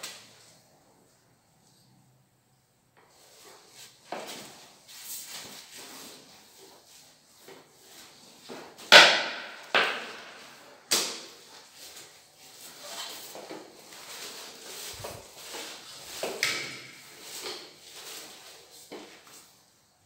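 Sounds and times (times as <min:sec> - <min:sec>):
tool swishing across floor: 0:03.1 - 0:19.7.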